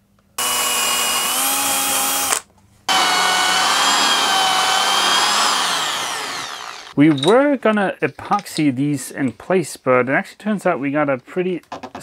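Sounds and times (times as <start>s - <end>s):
electric drill whining: 0.4s - 7.0s.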